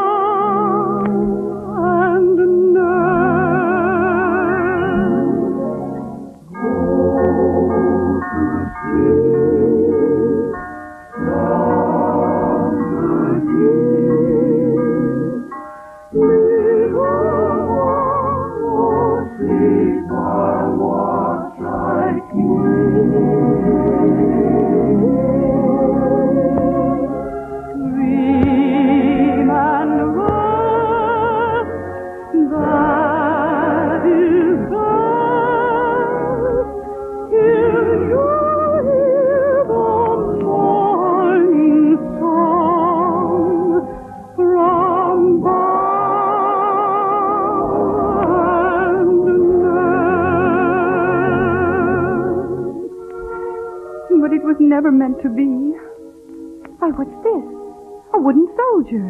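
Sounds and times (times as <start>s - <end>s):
woman singing operatic soprano: 0.0s - 1.1s, 1.7s - 5.2s, 27.8s - 43.8s, 44.4s - 52.8s
orchestral accompaniment: 0.0s - 59.0s.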